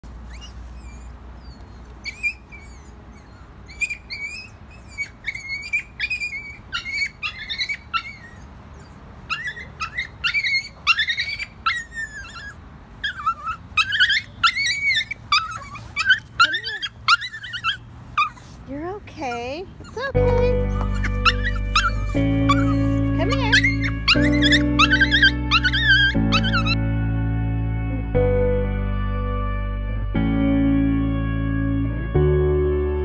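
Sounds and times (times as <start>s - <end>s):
small dog yelping and whining: 0.1s - 26.8s.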